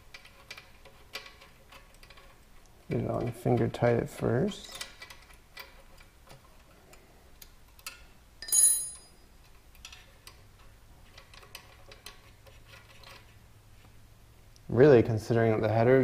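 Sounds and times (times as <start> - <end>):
ringing metal clink: 8.4 - 9.2.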